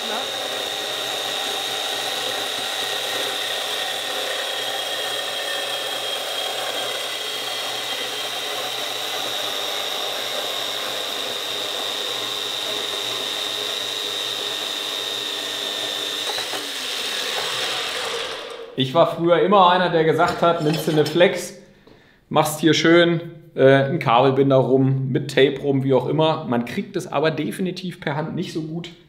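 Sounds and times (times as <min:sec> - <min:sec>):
band saw cutting metal tube: 0:00.0 - 0:18.8, 0:20.3 - 0:21.3.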